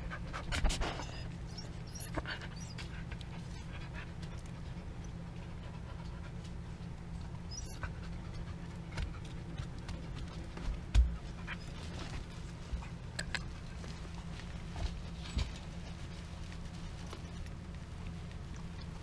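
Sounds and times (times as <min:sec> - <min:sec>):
dog panting: 0:00.0 - 0:06.6, 0:07.4 - 0:13.0.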